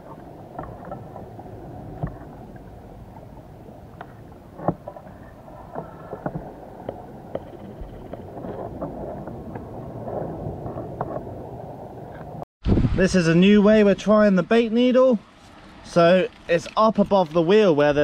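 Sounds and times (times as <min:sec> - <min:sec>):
muffled underwater water rush: 0:00.0 - 0:13.1.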